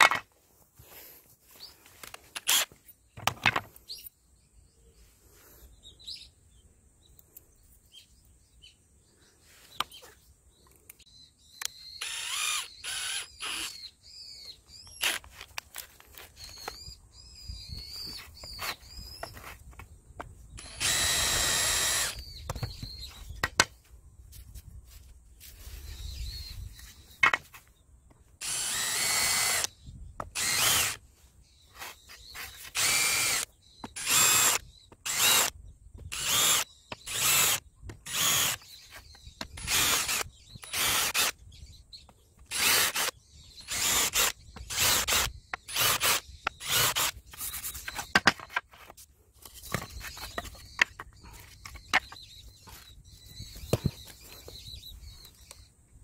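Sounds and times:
cordless drill bursts: 0:02.4 - 0:02.7, 0:11.9 - 0:13.9, 0:14.9 - 0:15.3, 0:20.6 - 0:22.4, 0:28.4 - 0:31.0, 0:32.7 - 0:38.7, 0:39.6 - 0:41.4, 0:42.5 - 0:47.2.

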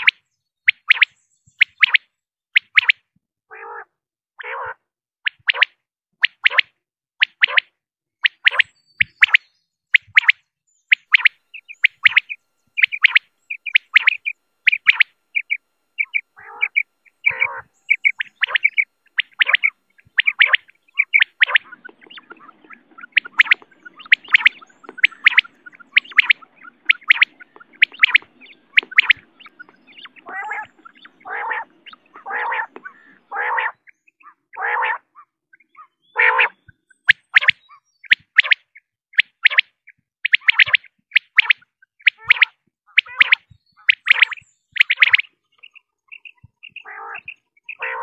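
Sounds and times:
quail lower longer calls: 0:02.6 - 0:05.7, 0:10.0 - 0:38.6, 0:40.3 - 0:48.0
quail high calls: 0:03.5 - 0:04.8, 0:11.0 - 0:38.6, 0:40.3 - 0:48.0.

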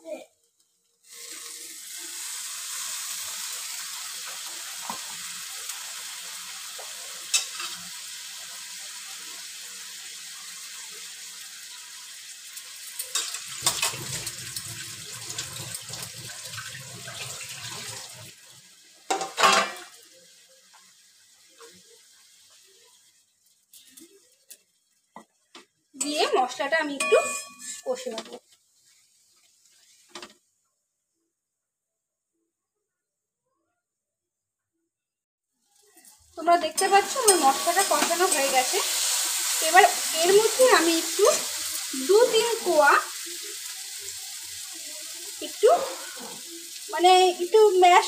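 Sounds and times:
water sizzling in hot oil: 0:00.0 - 0:27.1, 0:27.7 - 0:30.5, 0:35.5 - 0:48.0
metal spatula knocking pan: 0:27.0 - 0:28.3.

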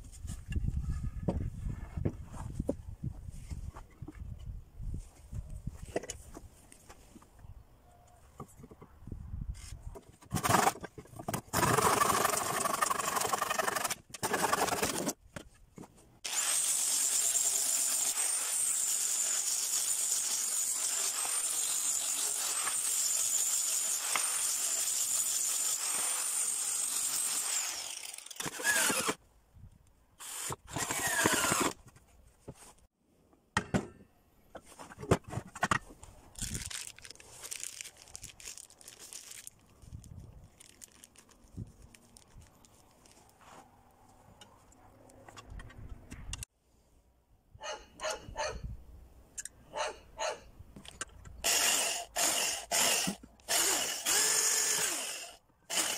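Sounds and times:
hand saw through wood: 0:10.3 - 0:15.2, 0:16.2 - 0:29.2, 0:30.2 - 0:31.8, 0:51.5 - 0:55.9
angle grinder whining: 0:16.3 - 0:29.2, 0:51.5 - 0:55.9.

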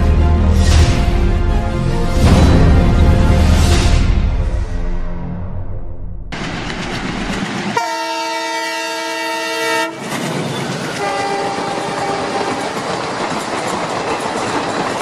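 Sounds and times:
train running: 0:06.3 - 0:15.0
train horn: 0:07.8 - 0:10.0, 0:11.0 - 0:12.8.

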